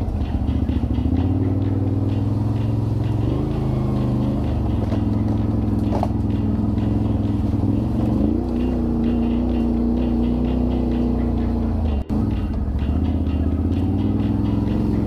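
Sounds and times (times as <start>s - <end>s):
vehicle engine running at low revs: 0.0s - 15.0s.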